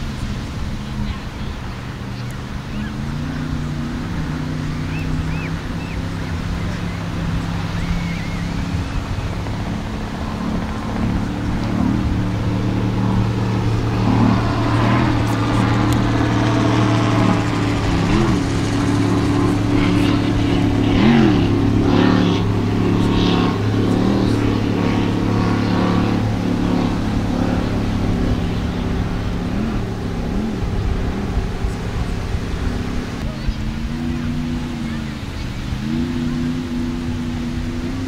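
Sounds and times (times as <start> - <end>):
powerboat engines revving: 0.0 - 38.0.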